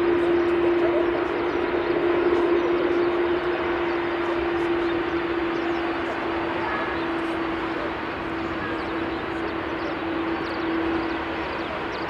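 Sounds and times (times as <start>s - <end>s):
jet engines running: 0.0s - 12.0s.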